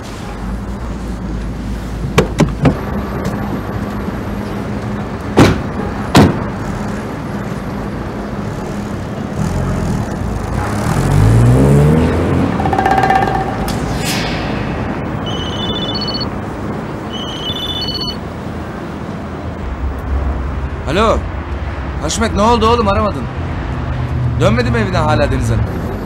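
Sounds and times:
car doors slamming: 5.4 - 6.5
car engine pulling away: 6.6 - 13.4.

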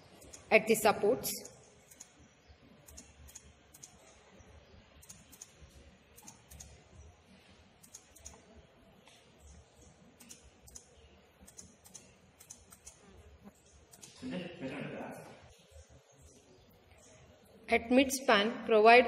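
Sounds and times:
low room noise: 0.0 - 19.0
mouse and keyboard clicking: 0.2 - 0.5, 1.4 - 2.2, 2.8 - 4.2, 5.0 - 5.6, 6.2 - 6.8, 7.8 - 8.5, 9.8 - 14.2.

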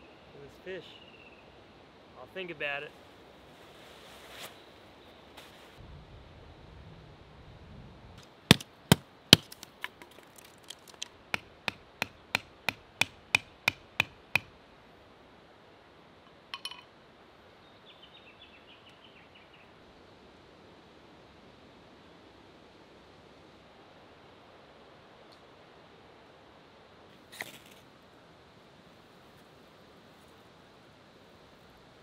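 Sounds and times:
sharp hammer-like knocks: 8.5 - 9.6, 11.3 - 14.5.

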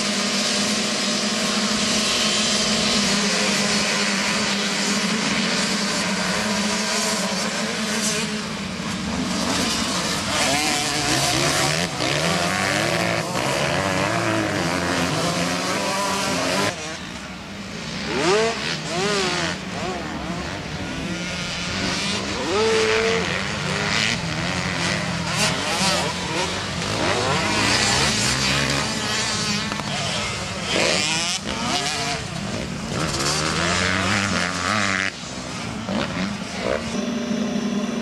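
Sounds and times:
motocross bike engines revving: 0.0 - 38.0.

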